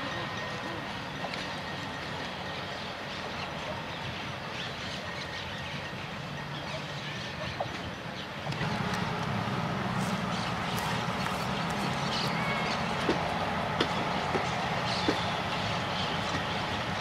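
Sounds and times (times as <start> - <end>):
train coaches rumbling past: 0.0 - 17.0
wheels clicking over rail joints: 7.5 - 17.0.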